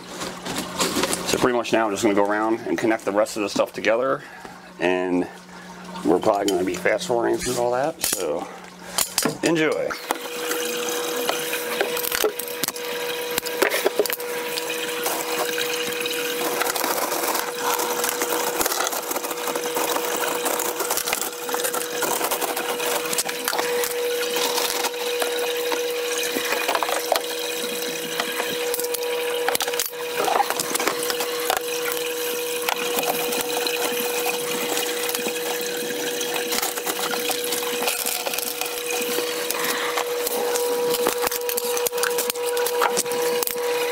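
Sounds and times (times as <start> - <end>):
plastic tubing crackle and clatter: 0.0 - 1.4, 11.2 - 43.9.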